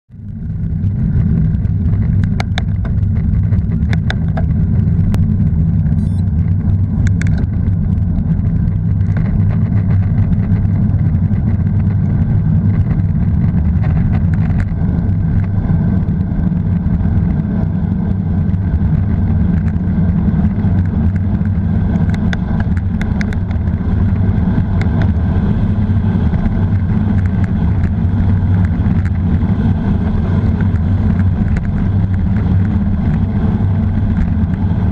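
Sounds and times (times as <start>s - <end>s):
bike tyre rumble on asphalt: 0.1s - 34.9s
wind on microphone: 0.1s - 34.9s.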